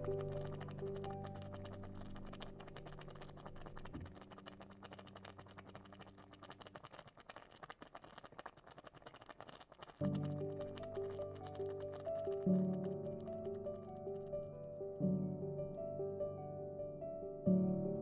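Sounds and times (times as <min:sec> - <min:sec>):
soft background music: 0:00.0 - 0:04.2, 0:10.0 - 0:18.0
curry bubbling and oil spitting: 0:00.0 - 0:14.2.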